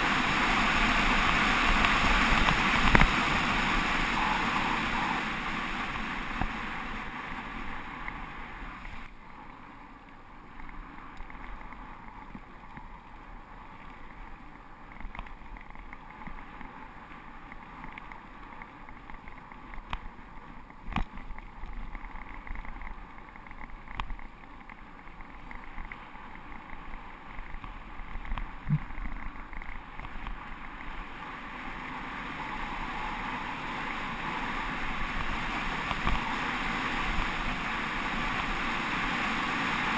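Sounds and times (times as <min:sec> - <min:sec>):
tyres rolling on gravel: 0:00.0 - 0:09.3
wind rushing over camera: 0:00.0 - 0:39.9.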